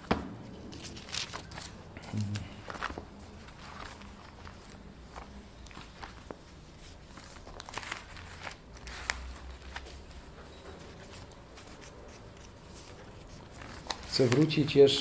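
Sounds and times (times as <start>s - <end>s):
pages rustling: 0.0s - 15.0s
small clicks and crinkles: 0.6s - 15.0s.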